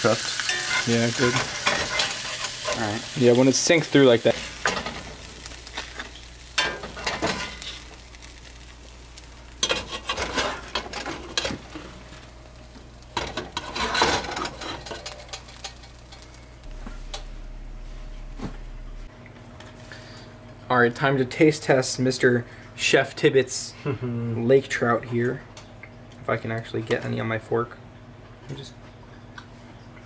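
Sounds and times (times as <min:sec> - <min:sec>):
fish frying in a pan: 0:00.0 - 0:16.6
spatula scraping a skillet: 0:00.4 - 0:03.0, 0:09.6 - 0:11.6, 0:13.2 - 0:15.9
steady low hum: 0:04.4 - 0:20.8.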